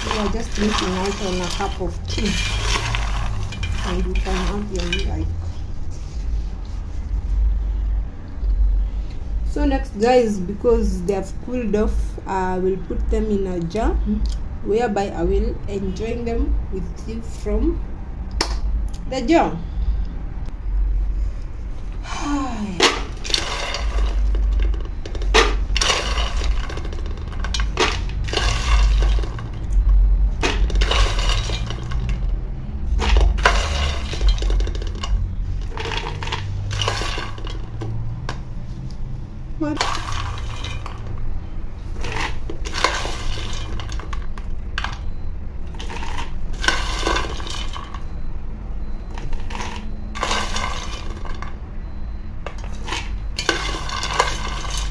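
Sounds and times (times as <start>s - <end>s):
peanuts rattling and clattering: 0.0s - 5.4s, 22.8s - 29.7s, 30.4s - 38.0s, 39.8s - 41.1s, 41.9s - 45.0s, 45.7s - 48.0s, 52.6s - 54.9s
spoon scraping a pan: 0.0s - 5.9s, 22.8s - 29.5s, 30.4s - 38.3s, 39.7s - 41.1s, 41.8s - 44.2s, 52.6s - 54.9s.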